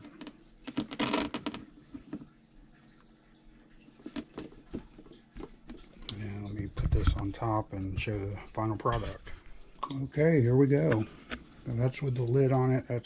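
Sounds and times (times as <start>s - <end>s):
crackling rustle of clicks: 0.0s - 10.1s.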